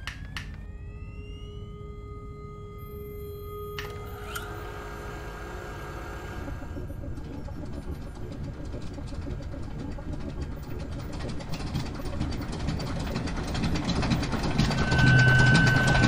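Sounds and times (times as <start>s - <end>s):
low electrical hum: 0.0s - 12.0s
rapid clicking and crackling: 6.8s - 14.9s.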